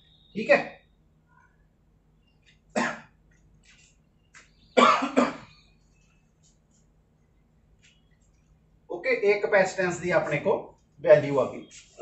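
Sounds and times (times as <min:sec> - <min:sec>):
man coughing: 0:02.8 - 0:03.1, 0:04.8 - 0:05.5.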